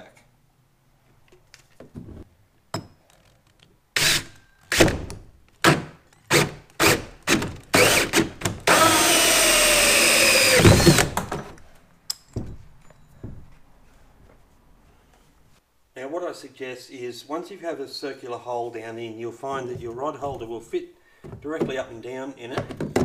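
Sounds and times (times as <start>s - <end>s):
drill hole saw cutting plastic: 6.3s - 11.2s.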